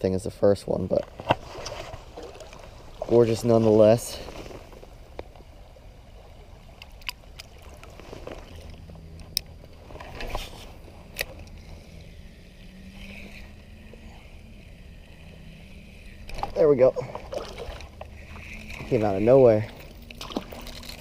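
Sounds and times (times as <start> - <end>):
fishing reel whirring: 6.8 - 21.0.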